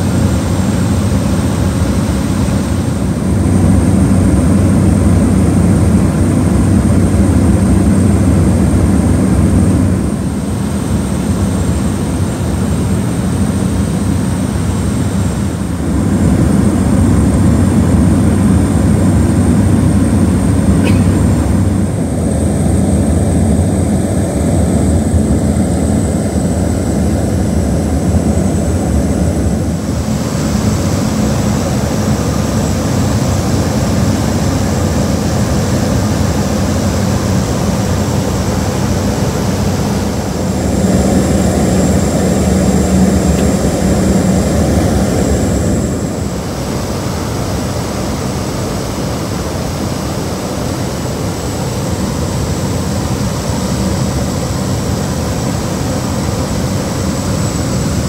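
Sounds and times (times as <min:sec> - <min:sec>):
turboprop engine drone: 0:00.0 - 0:58.0
thin high whine: 0:15.9 - 0:58.0.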